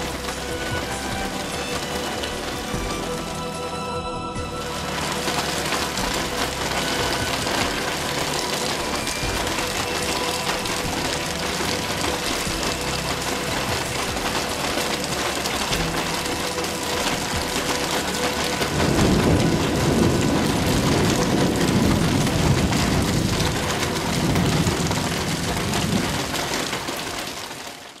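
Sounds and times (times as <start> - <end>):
heavy rain pouring: 0.0 - 28.0.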